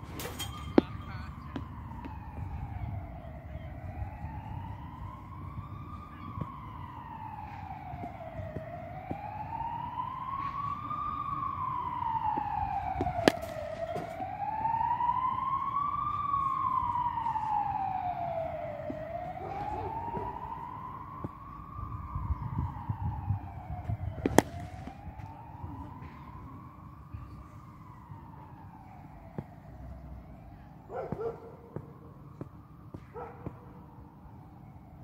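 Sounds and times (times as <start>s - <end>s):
siren wailing: 0.0s - 35.0s
cricket bat hitting ball: 12.4s - 14.2s, 24.2s - 25.0s.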